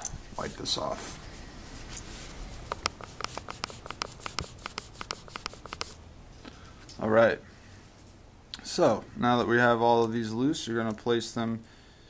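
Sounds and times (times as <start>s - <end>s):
lens being wiped scratchy clicks: 2.0s - 6.0s.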